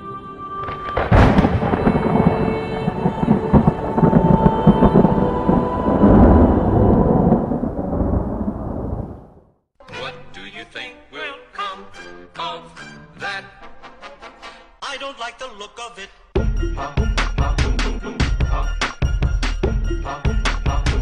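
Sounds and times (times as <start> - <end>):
thunder crack and rumble: 0.6 - 9.6.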